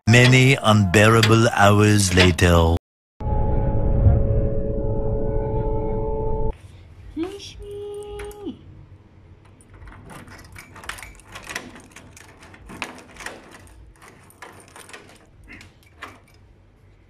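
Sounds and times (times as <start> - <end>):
key clicking and rattling in lock: 9.4 - 17.0.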